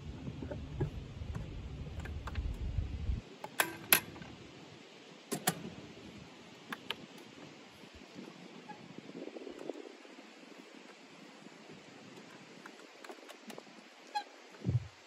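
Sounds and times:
low rumble: 0.0 - 3.2
outboard motor tilt clicks: 0.0 - 4.4, 12.0 - 15.0.

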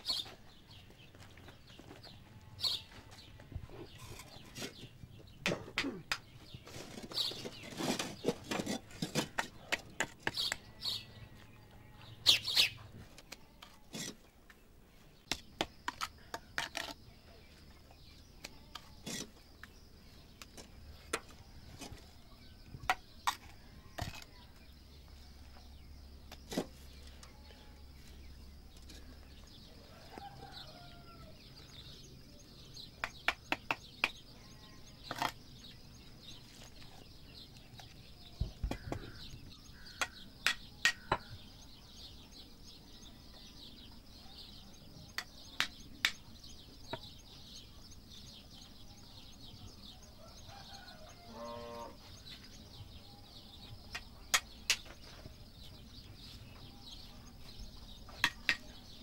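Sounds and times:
birds chirping: 0.0 - 59.0
trowel tapping clay bricks: 8.3 - 10.7, 33.0 - 34.2, 38.6 - 41.4, 45.1 - 46.2, 53.9 - 55.2, 58.1 - 58.9.

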